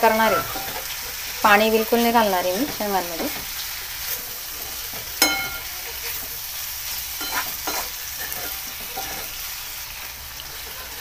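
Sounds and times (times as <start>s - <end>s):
beans sizzling in oil: 0.0s - 11.0s
ladle clinking on pan: 5.2s - 5.7s, 7.2s - 9.3s
ladle scraping pan: 7.2s - 9.4s.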